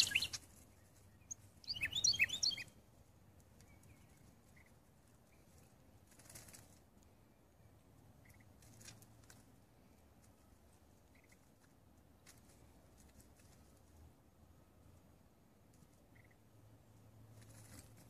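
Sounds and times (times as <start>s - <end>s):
small bird double chirps: 0.0s - 0.4s, 1.3s - 2.7s
faint rustling crackles: 0.0s - 1.7s, 2.5s - 7.3s, 8.4s - 14.1s, 17.3s - 18.0s.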